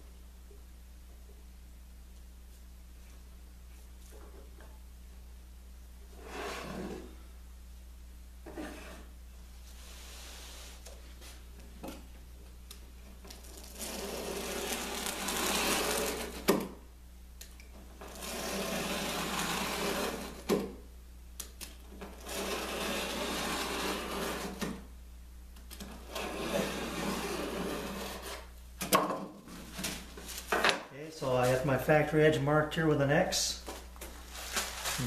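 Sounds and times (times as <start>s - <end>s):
steady low hum: 0.0s - 35.0s
utility knife cutting carpet tile: 13.6s - 16.6s, 18.1s - 20.5s, 22.2s - 24.7s.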